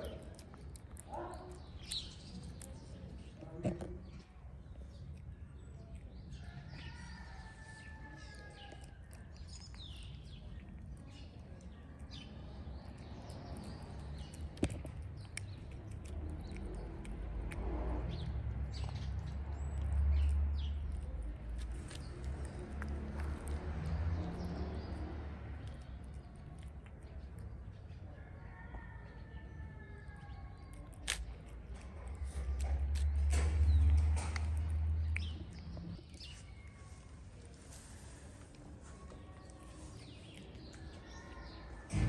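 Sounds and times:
small birds chirping: 0.0 - 41.9
low outdoor rumble: 0.0 - 42.0.

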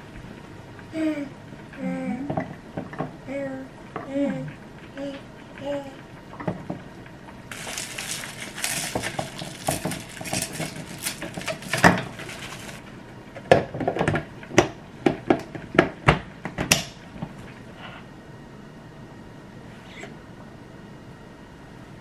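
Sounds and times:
spoon scraping on plastic: 7.5 - 12.8.

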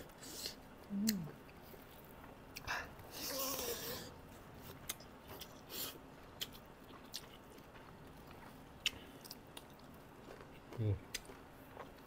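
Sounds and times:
chewing with lip smacks: 4.6 - 12.0.

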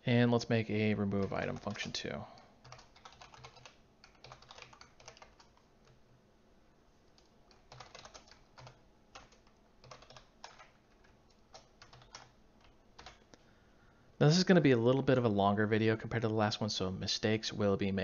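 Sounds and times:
faint keyboard typing: 0.8 - 6.2, 7.0 - 13.5.

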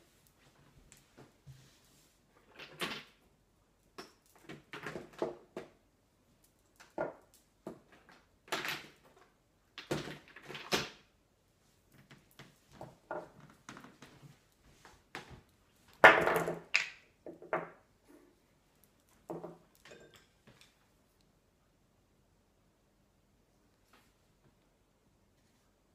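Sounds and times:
knocks and clatter of handling: 19.1 - 20.8.

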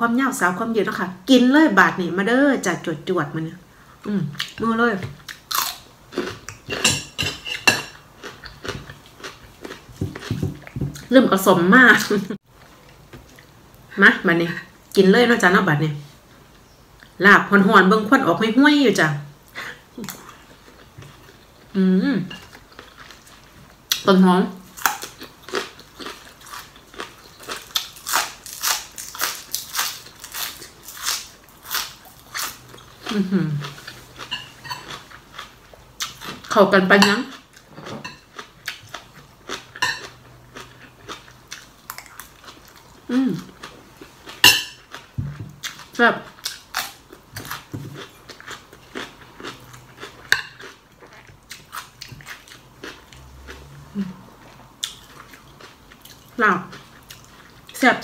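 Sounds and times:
crunchy chewing: 5.2 - 6.8, 8.2 - 10.8, 24.7 - 36.5, 37.2 - 57.8
green onion crunching: 5.3 - 6.8, 24.8 - 32.6.

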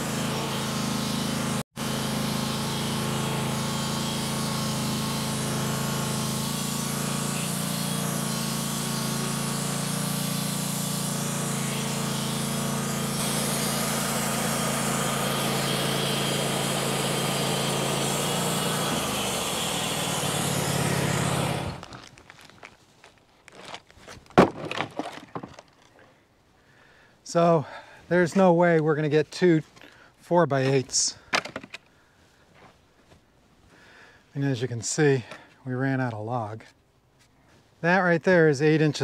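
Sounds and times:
sawmill engine running: 0.0 - 21.9
bandsaw blade cutting log: 0.0 - 22.0.

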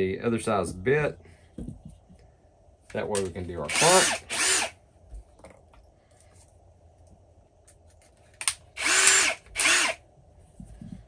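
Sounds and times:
drill motor spinning up: 3.7 - 4.8, 8.8 - 10.0.

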